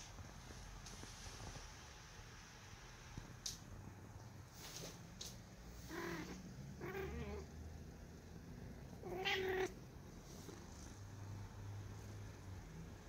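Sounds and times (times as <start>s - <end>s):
cat meowing: 5.9s - 7.5s, 9.0s - 9.8s.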